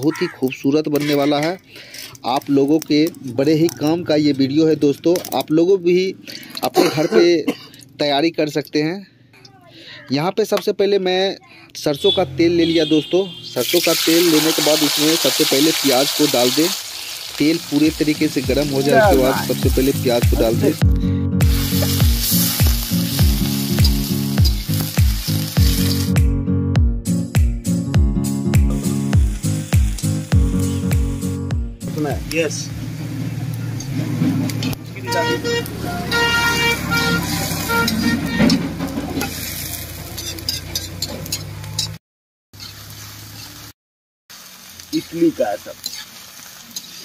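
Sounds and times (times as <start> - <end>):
onions sizzling in oil: 13.6 - 20.8, 21.4 - 26.2, 28.7 - 31.0, 34.5 - 38.0, 39.1 - 41.4, 42.6 - 43.7, 44.3 - 47.0
background music with deep beat: 18.5 - 31.9.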